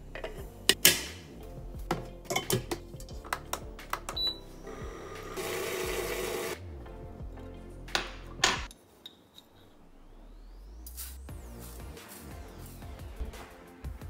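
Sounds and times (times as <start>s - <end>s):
background music: 0.0s - 8.7s, 10.1s - 14.0s
milk frother whirring: 4.7s - 6.6s.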